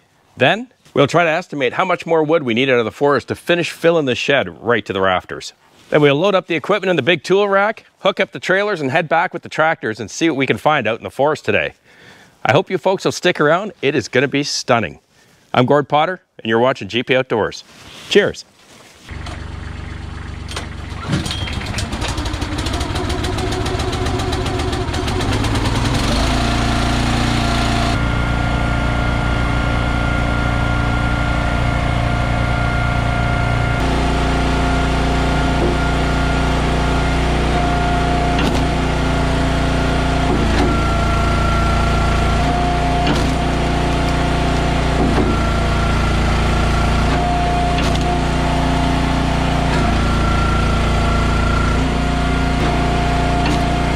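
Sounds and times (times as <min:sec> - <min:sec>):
small gasoline engine running: 0:19.1 - 0:53.9.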